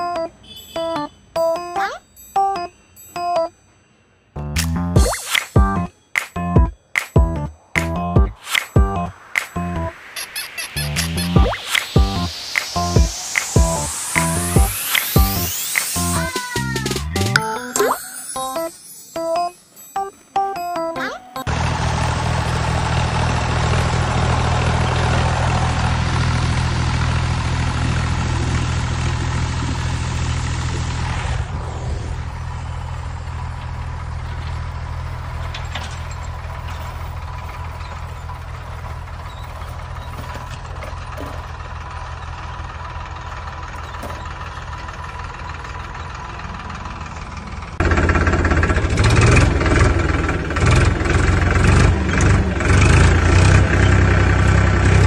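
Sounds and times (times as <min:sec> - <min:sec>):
rough engine sound: 0:07.4 - 0:17.4, 0:21.5 - 0:55.0
vehicle engine running: 0:10.7 - 0:17.4, 0:21.5 - 0:55.0.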